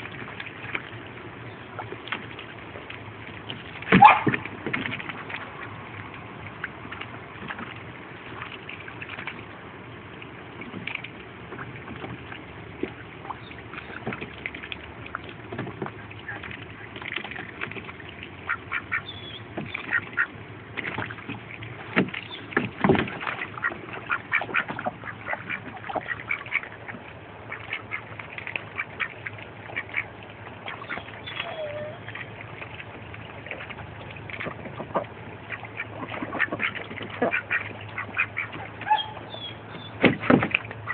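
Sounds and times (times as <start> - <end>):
ducks dabbling in water: 0.0 - 40.9
ducks quacking: 18.3 - 21.2, 23.1 - 32.3, 33.4 - 40.9.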